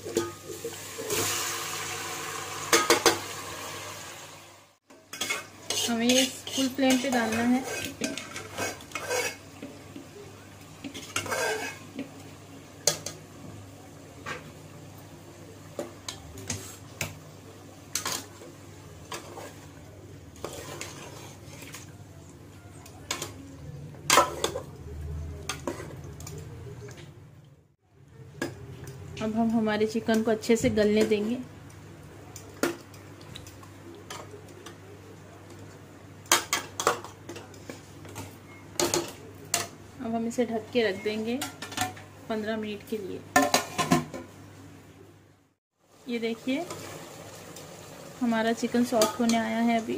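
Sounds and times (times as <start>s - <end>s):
metal utensils clinking on pot: 0.0s - 0.6s, 4.9s - 9.8s, 10.8s - 12.0s, 22.8s - 23.5s, 24.1s - 24.7s, 36.2s - 39.8s, 43.4s - 44.2s
metal spoon scraping metal pot: 5.1s - 9.5s, 11.0s - 11.9s.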